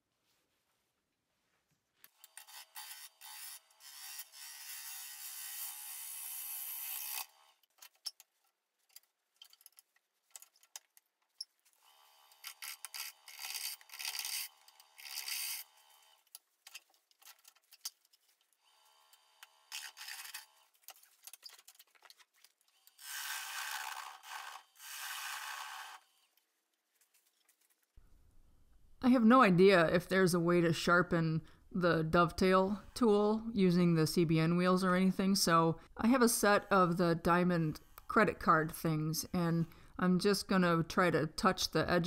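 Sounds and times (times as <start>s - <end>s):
lathe gouge shaving wood: 23.0s - 26.2s.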